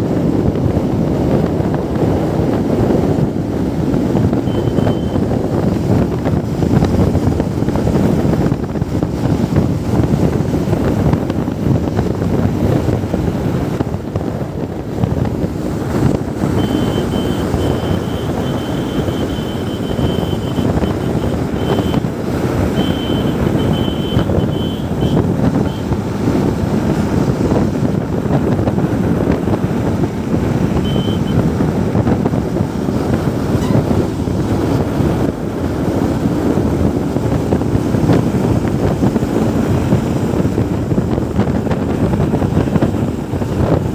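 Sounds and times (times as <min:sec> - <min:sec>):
motorcycle engine running: 0:00.0 - 0:43.9
road noise: 0:00.0 - 0:43.9
wind buffeting microphone: 0:00.0 - 0:43.9
thin high beeping: 0:04.5 - 0:05.2, 0:22.8 - 0:25.8.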